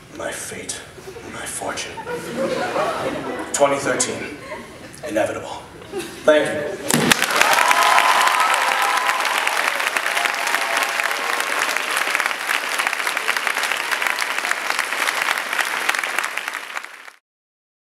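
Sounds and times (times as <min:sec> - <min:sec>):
audience applauding: 0:06.9 - 0:17.2
voices cheering: 0:07.2 - 0:15.4.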